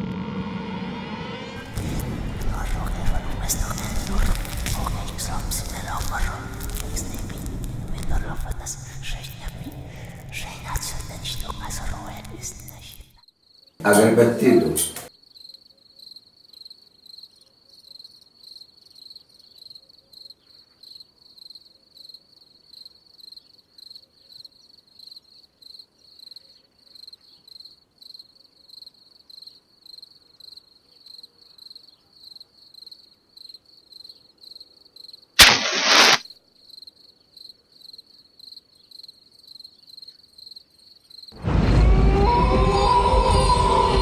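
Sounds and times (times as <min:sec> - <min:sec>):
match striking: 0:01.7 - 0:13.1, 0:35.4 - 0:36.2
crickets chirping: 0:01.7 - 0:13.8, 0:15.1 - 0:41.4.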